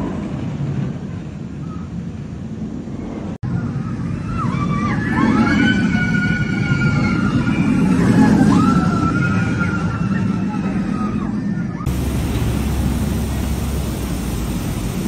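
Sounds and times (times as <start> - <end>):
roller coaster rumbling on track: 0.0 - 15.0
riders screaming: 11.9 - 15.0.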